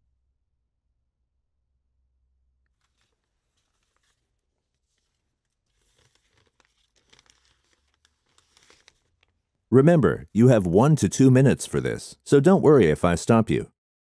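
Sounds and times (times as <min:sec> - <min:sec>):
faint paper rustling: 0:02.7 - 0:09.7.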